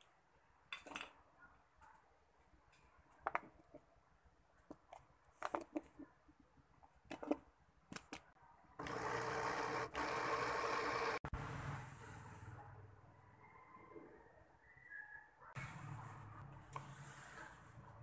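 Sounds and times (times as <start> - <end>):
blender motor running: 8.8 - 11.3.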